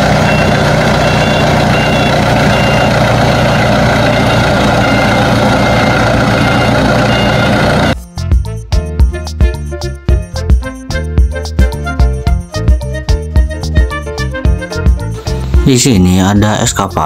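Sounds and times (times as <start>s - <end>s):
tow tractor engine noise: 0.0s - 8.0s
short high beeps: 0.3s - 8.0s.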